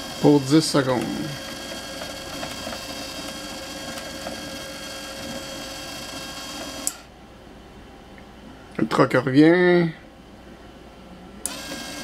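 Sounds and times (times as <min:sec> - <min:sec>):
small electric motor running: 0:00.0 - 0:07.1, 0:11.5 - 0:12.0
motor stop click: 0:11.4 - 0:12.0.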